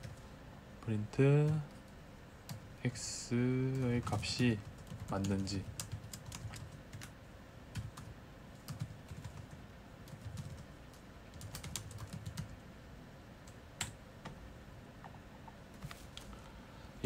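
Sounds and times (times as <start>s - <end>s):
computer keyboard typing: 3.7s - 12.6s.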